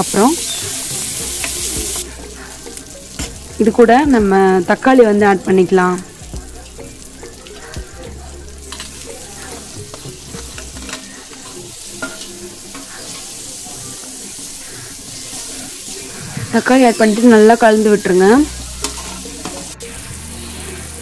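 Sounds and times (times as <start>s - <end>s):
masala sizzling in oil: 0.0s - 21.0s
spoon clicking against pan: 8.7s - 9.0s, 9.9s - 12.9s.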